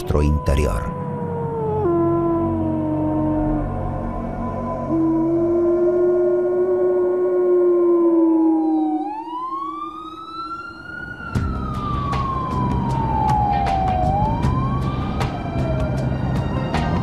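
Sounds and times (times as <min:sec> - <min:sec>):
emergency vehicle siren: 0:00.0 - 0:17.0
wolf howling: 0:00.9 - 0:11.3
city traffic rumble: 0:10.3 - 0:17.0.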